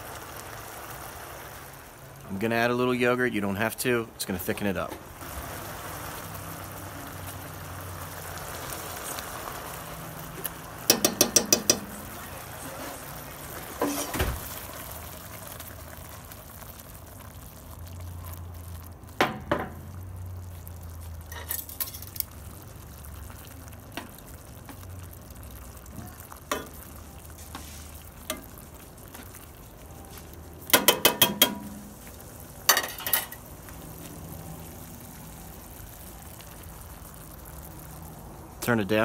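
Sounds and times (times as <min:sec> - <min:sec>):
bubbling sauce hissing: 0:00.0 - 0:39.0
spoon tapping: 0:10.9 - 0:12.1, 0:30.7 - 0:31.9
spoon knocking and scraping pan: 0:10.9 - 0:12.2, 0:13.8 - 0:14.3, 0:19.2 - 0:19.8, 0:30.6 - 0:32.1.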